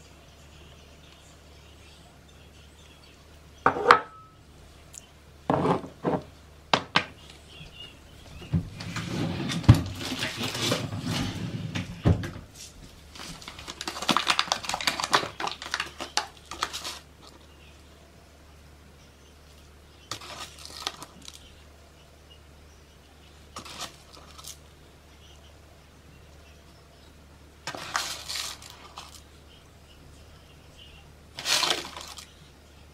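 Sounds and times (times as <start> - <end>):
scraping and shuffling: 7.3 - 17.4
paper bag rustling: 8.8 - 11.9, 12.6 - 17.3, 20.1 - 21.4, 23.6 - 24.6, 27.7 - 29.2, 31.4 - 32.3.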